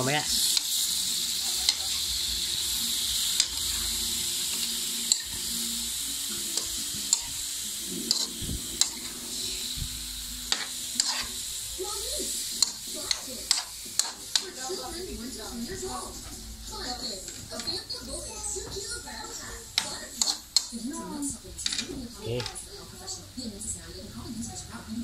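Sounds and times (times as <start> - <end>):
chicken sizzling in a wok: 0.0 - 25.0
metal spoon clicking on pan: 10.5 - 11.3, 12.6 - 14.5, 19.8 - 20.8.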